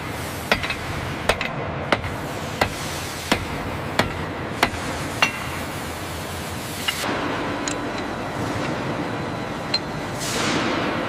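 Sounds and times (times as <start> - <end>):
mechanical hiss and hum: 0.0 - 11.0.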